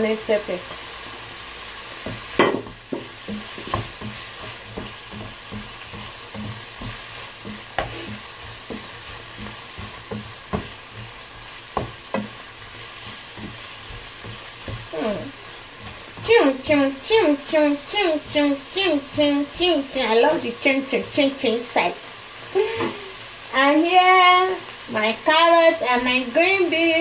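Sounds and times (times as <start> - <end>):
food sizzling in a frying pan: 0.0 - 27.0
spatula knocking against pan: 2.0 - 15.0.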